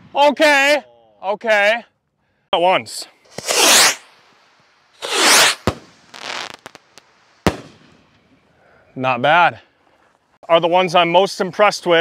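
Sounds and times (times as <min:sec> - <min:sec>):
rocket whooshing: 0:03.3 - 0:08.0
firework crackles: 0:03.3 - 0:08.2
firework bang: 0:05.0 - 0:08.2.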